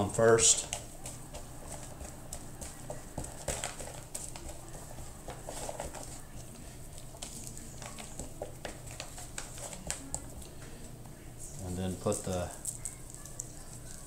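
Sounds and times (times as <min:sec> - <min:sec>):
hands patting meat: 0:00.0 - 0:10.5
low room hum: 0:00.0 - 0:14.0.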